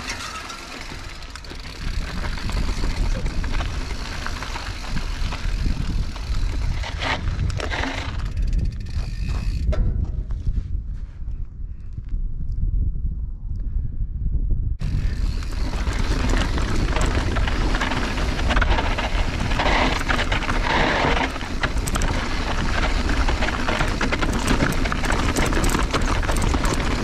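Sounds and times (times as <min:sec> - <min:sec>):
bike tyres crunching over gravel: 0:00.0 - 0:10.4, 0:14.8 - 0:27.0
bike clicking and rattling: 0:00.0 - 0:10.5, 0:14.8 - 0:27.0
low wind rumble on microphone: 0:01.0 - 0:27.0.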